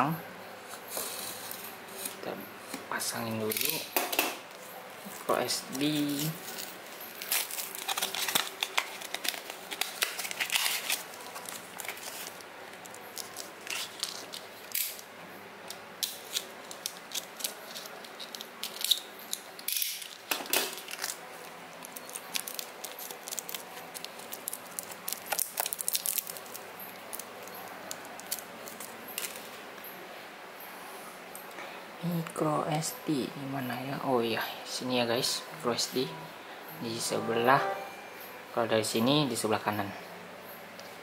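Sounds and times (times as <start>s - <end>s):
plastic packaging crinkling: 4.5s - 15.1s, 15.7s - 29.6s.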